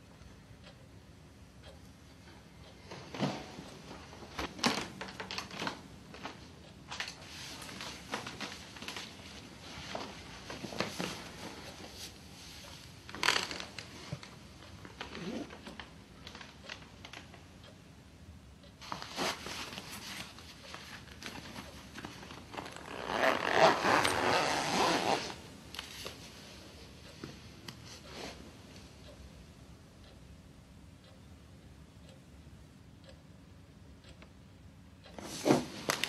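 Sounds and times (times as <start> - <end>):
clothing and bedclothes rustling: 2.8 - 17.4, 18.8 - 28.8, 35.2 - 36.0.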